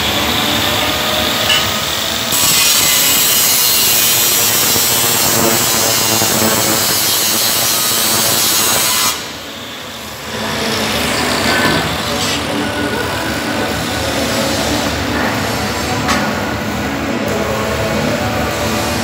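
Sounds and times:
angle grinder grinding steel: 0.0s - 16.0s
steady noise: 0.0s - 19.0s.

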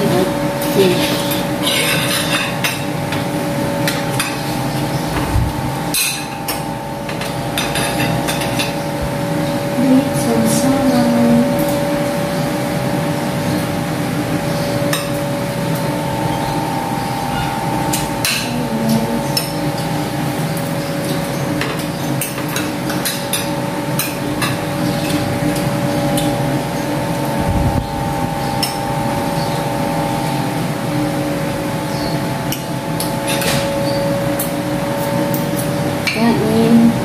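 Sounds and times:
steady background hum: 0.0s - 37.0s
cutlery clinking on plates: 1.1s - 2.9s.

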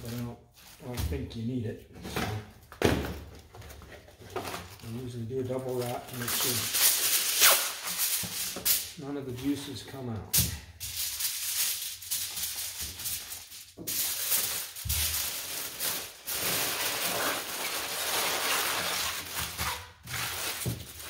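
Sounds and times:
aluminum foil crinkling: 3.6s - 8.8s, 10.5s - 21.0s.

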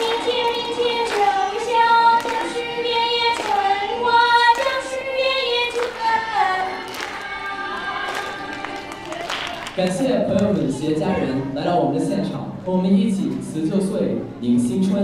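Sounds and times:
girl singing into microphone: 0.0s - 9.0s.

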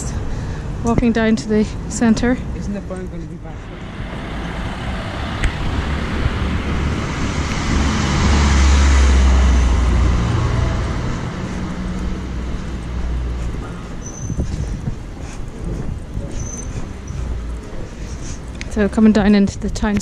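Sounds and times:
van engine rumble: 0.0s - 19.0s
tyres on cobbles: 2.2s - 20.0s.

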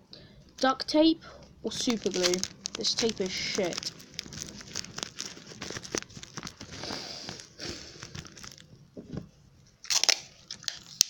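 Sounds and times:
packing tape crackling: 1.3s - 8.8s, 9.8s - 11.0s.

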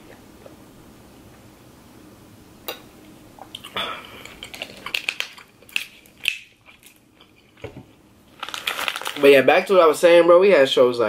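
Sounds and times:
plastic bottle crinkling: 3.6s - 9.4s.

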